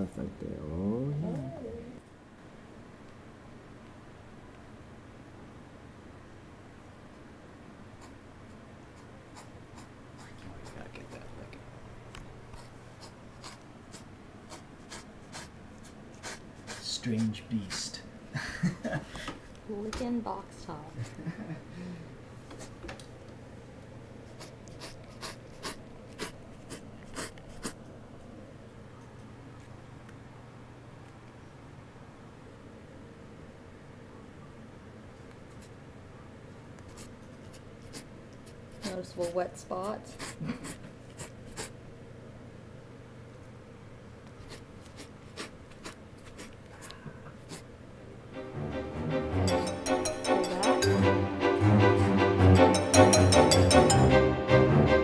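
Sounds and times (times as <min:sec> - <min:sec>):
cat tongue rasping on cardboard: 0:12.6 - 0:17.8, 0:24.3 - 0:27.8, 0:36.8 - 0:41.8, 0:44.3 - 0:46.7.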